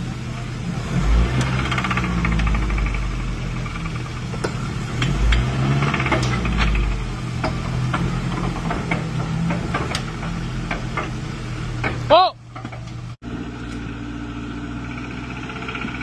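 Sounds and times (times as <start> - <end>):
truck engine at low revs: 0.0 - 16.0
sharp clicks and clunks: 1.3 - 11.2, 11.8 - 13.1.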